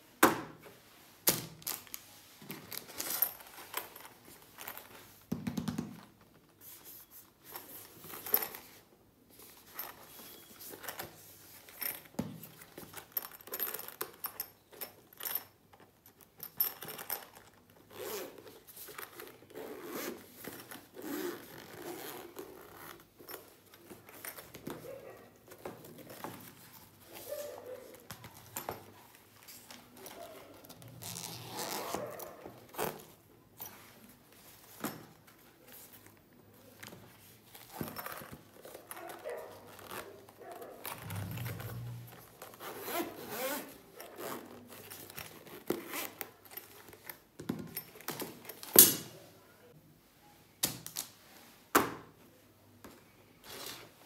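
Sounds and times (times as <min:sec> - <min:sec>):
zipper opening: 0:17.1 - 0:28.8, 0:30.0 - 0:33.2, 0:37.6 - 0:46.7.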